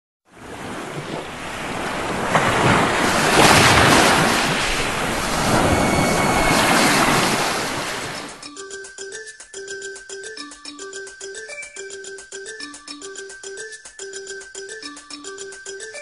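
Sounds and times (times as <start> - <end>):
waves washing onto shore: 0.3 - 8.4
wind rumbling on microphone: 0.4 - 8.4.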